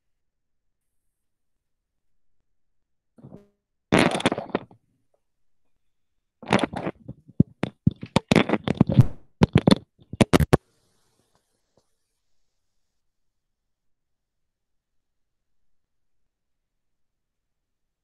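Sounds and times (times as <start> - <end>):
microphone handling noise: 3.2 - 4.8, 6.4 - 10.6.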